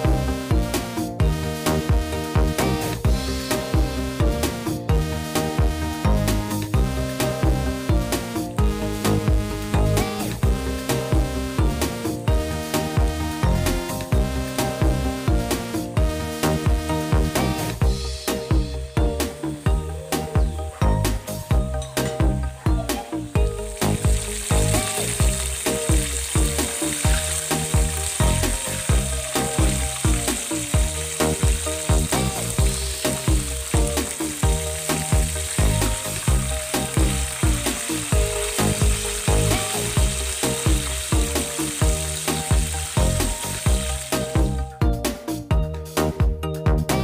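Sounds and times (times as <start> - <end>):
background music with beat: 0.0 - 47.0
chicken deep-frying in oil: 18.2 - 44.5.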